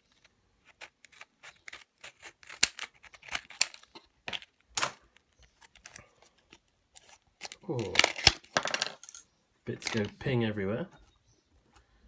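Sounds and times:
blister pack being cut open: 0:00.6 - 0:03.9, 0:07.0 - 0:08.5.

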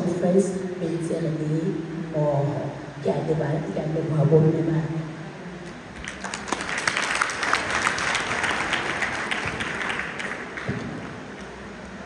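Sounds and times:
audience applauding: 0:06.0 - 0:11.7.

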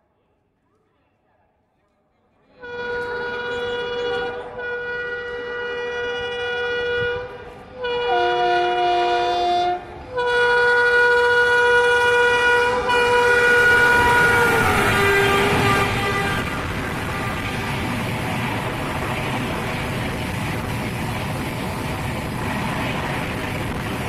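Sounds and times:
train horn blasts: 0:02.6 - 0:18.0
train running noise: 0:02.6 - 0:24.0.

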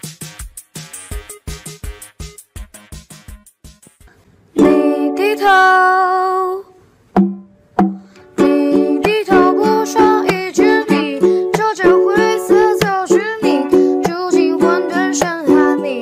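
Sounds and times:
song with plucked strings: 0:04.6 - 0:05.8, 0:07.2 - 0:16.0
person singing: 0:04.6 - 0:06.8, 0:08.3 - 0:16.0
beat-driven clipped notes: 0:07.2 - 0:08.2.

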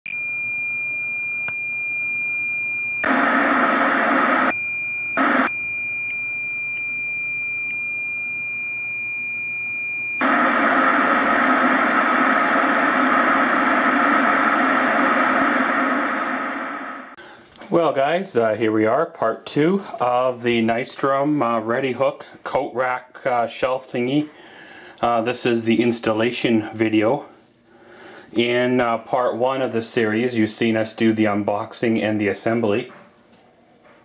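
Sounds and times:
tv static hiss: 0:03.0 - 0:04.5, 0:05.2 - 0:05.5, 0:10.2 - 0:17.2.

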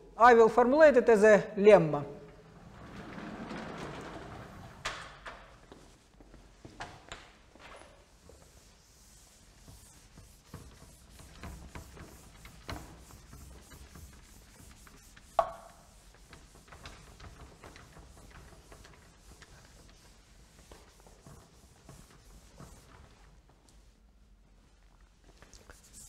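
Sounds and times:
eraser wiping a chalkboard: 0:08.0 - 0:23.9, 0:25.6 - 0:26.0.

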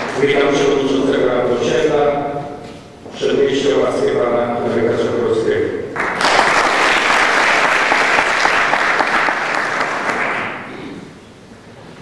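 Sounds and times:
audience applauding: 0:06.0 - 0:10.7.

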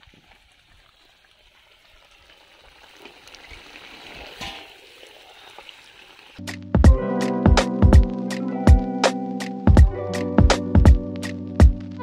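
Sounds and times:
chicken sizzling in a wok: 0:00.2 - 0:06.4.

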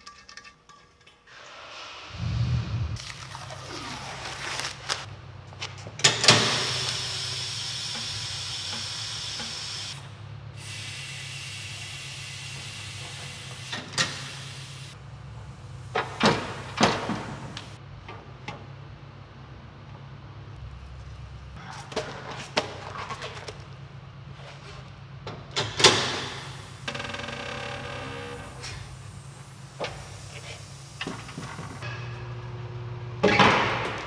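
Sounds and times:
steady low hum: 0:02.1 - 0:03.3
compressed air hissing: 0:10.6 - 0:15.0, 0:28.4 - 0:31.8.

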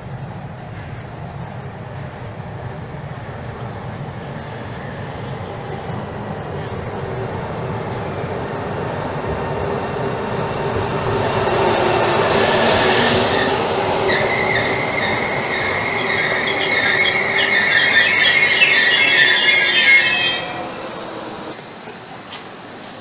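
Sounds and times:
train rumbling into station: 0:00.0 - 0:22.8
train brakes squealing: 0:12.8 - 0:21.5.

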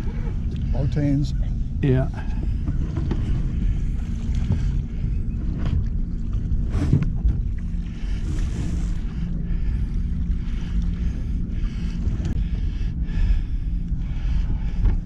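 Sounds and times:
steady low hum: 0:00.0 - 0:15.0
wind rumbling on microphone: 0:00.0 - 0:15.0
water splash and clatter: 0:02.2 - 0:09.0.

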